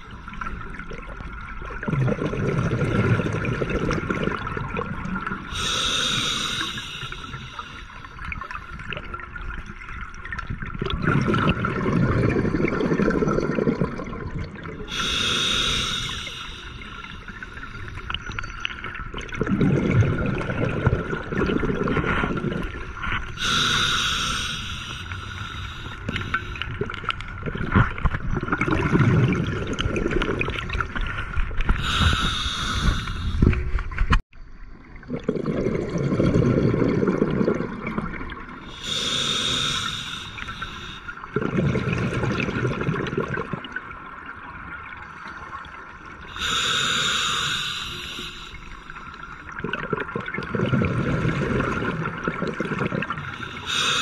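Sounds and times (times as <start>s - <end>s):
bubbling exhalation underwater: 1.7s - 6.2s, 10.7s - 16.2s, 19.2s - 22.8s, 25.7s - 31.0s, 35.0s - 43.8s, 49.5s - 54.0s
regulator hissing inhalation: 5.5s - 8.1s, 14.9s - 18.0s, 23.4s - 26.7s, 31.8s - 33.6s, 38.7s - 41.2s, 46.3s - 49.2s, 53.2s - 54.0s.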